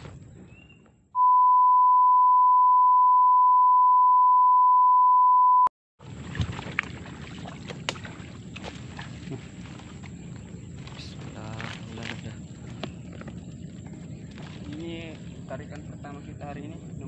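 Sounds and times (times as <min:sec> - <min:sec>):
steady electronic beep tone: 0:01.2 - 0:05.7
rustling through brush: 0:06.2 - 0:15.5.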